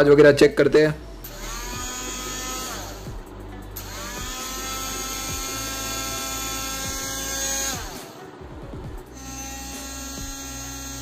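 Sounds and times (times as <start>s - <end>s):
hand blender motor whirring: 1.3s - 3.2s, 3.8s - 8.2s, 9.1s - 11.0s.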